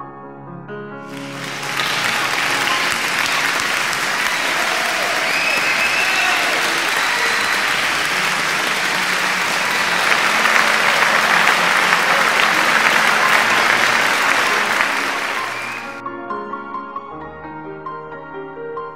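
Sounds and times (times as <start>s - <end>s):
crowd applauding: 1.1s - 16.0s.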